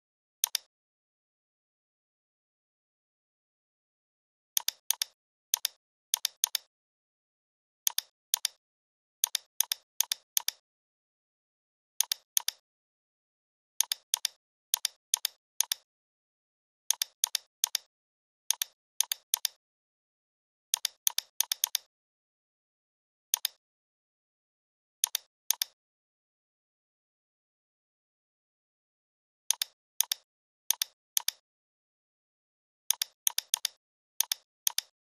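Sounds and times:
computer mouse clicking: 0.4s - 0.7s, 4.6s - 6.7s, 7.9s - 8.6s, 9.2s - 10.6s, 12.0s - 12.6s, 13.8s - 15.9s, 16.9s - 17.9s, 18.5s - 19.6s, 20.7s - 21.9s, 23.4s - 23.6s, 25.0s - 25.8s, 29.5s - 31.4s, 32.9s - 35.0s.

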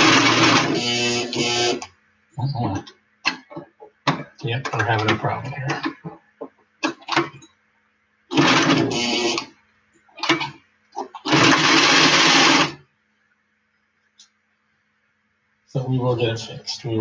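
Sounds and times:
electric sewing machine stitching: 0.0s - 1.9s, 8.3s - 9.5s, 11.1s - 12.8s.

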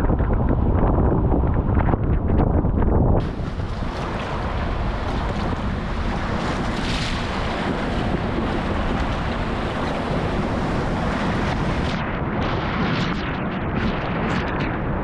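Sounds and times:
wind on microphone: 0.0s - 15.0s
whitewater rapids rushing: 3.2s - 11.9s.

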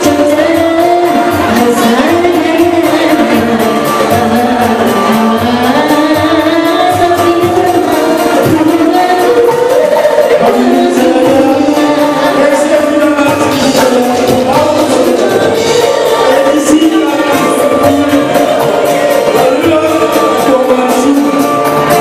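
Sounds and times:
live pop song with band: 0.0s - 22.0s.

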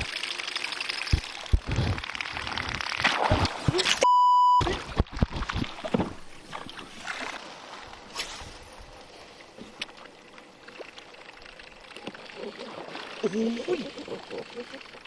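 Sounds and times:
water wash around boat: 0.0s - 15.0s
wind: 0.0s - 15.0s
short electronic beep: 4.0s - 4.7s.

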